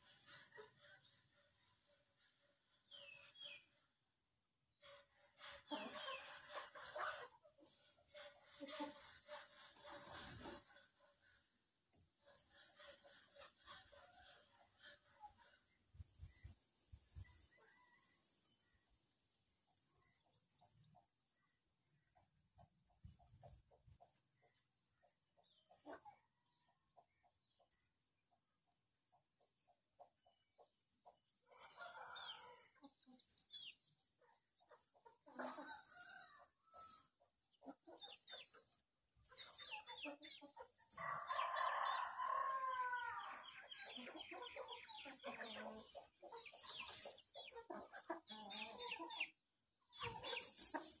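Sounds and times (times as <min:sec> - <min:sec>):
chickens clucking: 0:00.0 - 0:51.0
rooster crowing: 0:41.0 - 0:43.4.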